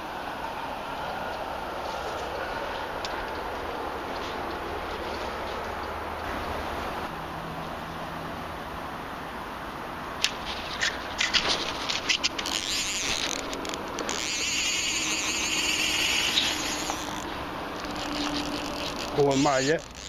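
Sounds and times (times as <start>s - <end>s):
high buzzing rattle: 10.3s - 20.0s.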